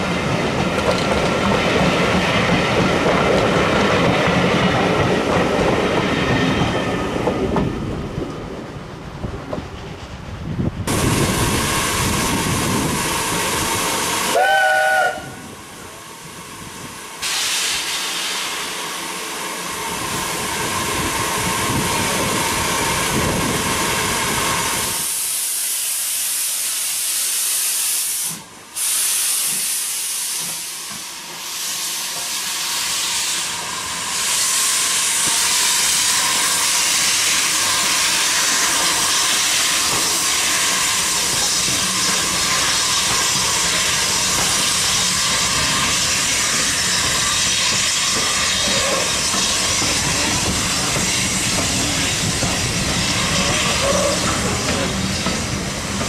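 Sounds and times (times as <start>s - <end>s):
steam engine hissing: 10.9s - 56.0s
steam whistle blast: 14.3s - 15.4s, 53.2s - 54.4s.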